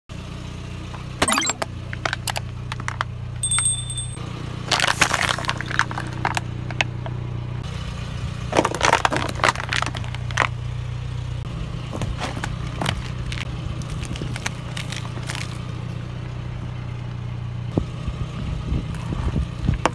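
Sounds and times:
plastic cracking and crunching: 0:08.6 - 0:10.4.

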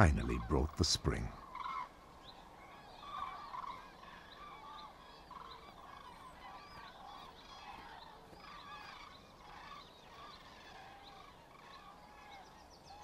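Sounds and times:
flock of cranes calling: 0:01.2 - 0:13.0.

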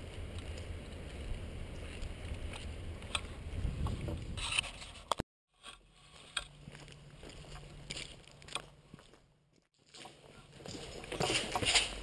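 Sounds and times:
wind rumble on microphone: 0:00.0 - 0:05.2.

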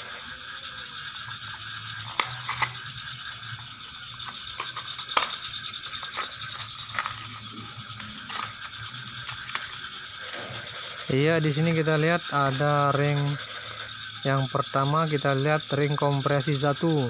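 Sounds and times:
frogs calling: 0:00.0 - 0:17.0.

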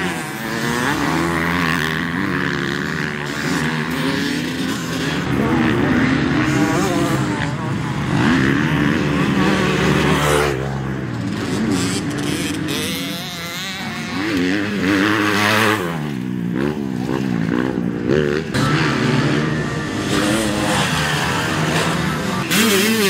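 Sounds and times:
motocross engines revving: 0:00.0 - 0:23.0.

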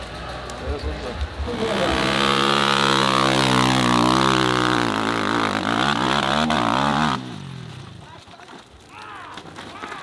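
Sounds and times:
dirt bike engine revving: 0:01.4 - 0:08.0.

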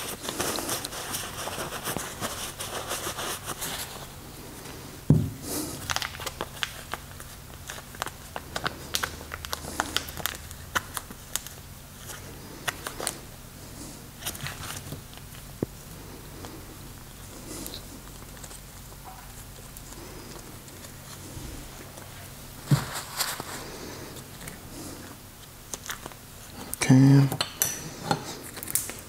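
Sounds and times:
loud knock: 0:05.1 - 0:05.4.

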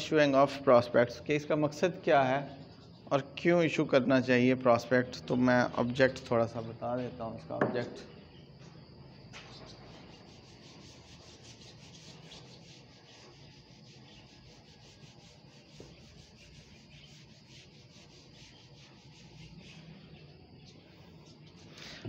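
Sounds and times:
eraser rubbing whiteboard: 0:09.7 - 0:20.3.

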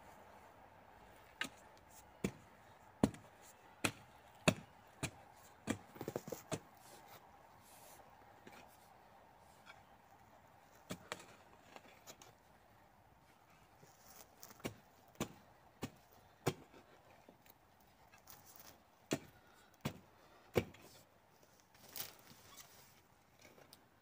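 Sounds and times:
soft hoe stroke: 0:00.0 - 0:23.1
hand hoe chopping into soil: 0:01.4 - 0:01.6, 0:02.2 - 0:06.9, 0:10.8 - 0:12.3, 0:14.0 - 0:16.9, 0:18.2 - 0:21.0.

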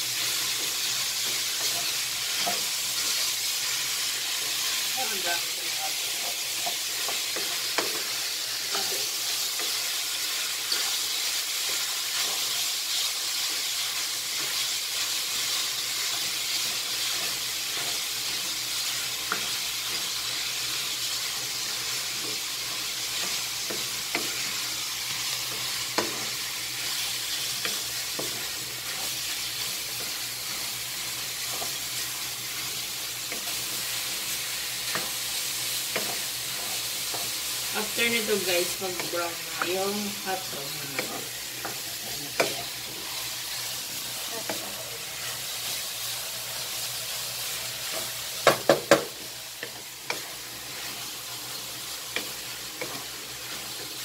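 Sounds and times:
meat sizzling in a pan: 0:00.0 - 0:54.0
wooden spatula stirring: 0:46.8 - 0:54.0
spatula knocking against pan: 0:48.4 - 0:49.2.

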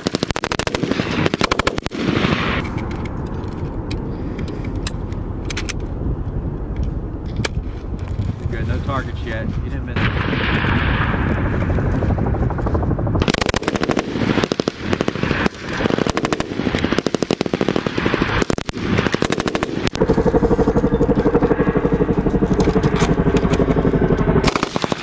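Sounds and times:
machine gun automatic fire: 0:00.0 - 0:02.7, 0:13.2 - 0:25.0.

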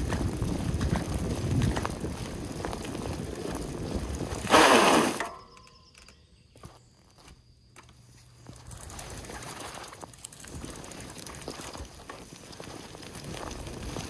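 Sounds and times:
mountain bike rattling: 0:00.0 - 0:06.8, 0:07.8 - 0:14.0
air hissing out of tyre: 0:04.5 - 0:05.3.

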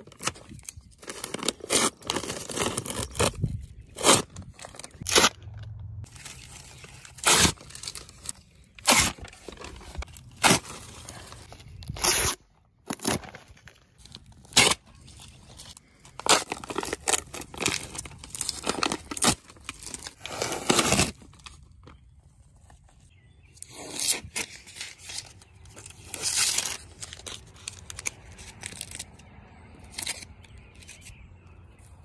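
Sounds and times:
plastic sheeting and tape ripping: 0:00.1 - 0:03.3, 0:06.1 - 0:13.7, 0:16.2 - 0:21.4.

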